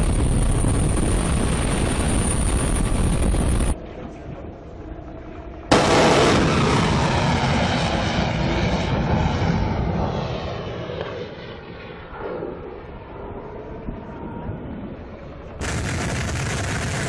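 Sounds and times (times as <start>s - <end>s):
missile launch blast: 5.7s - 8.4s.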